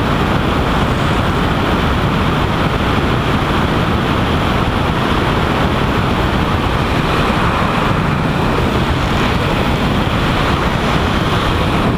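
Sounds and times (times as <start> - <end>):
helicopter engine and rotor: 0.0 - 11.9
wind rushing on microphone: 0.0 - 11.9.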